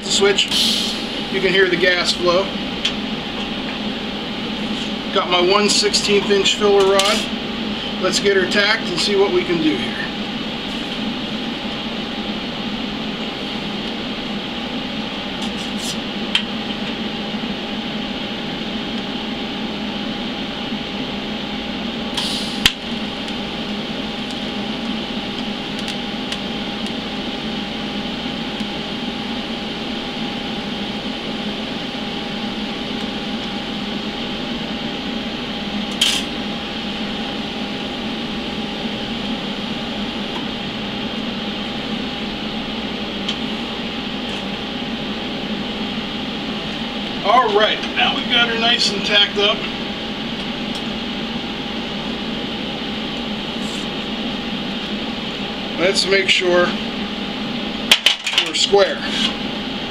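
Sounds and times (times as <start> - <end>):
welder humming and gas hissing: 0.0 - 59.9
welding arc crackles: 22.1 - 27.2.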